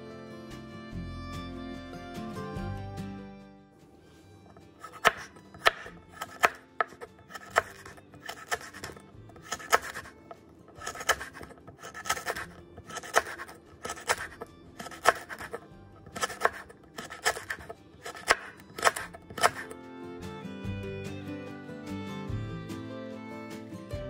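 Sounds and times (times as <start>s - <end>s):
knife slicing on cutting board: 4.4s - 19.8s.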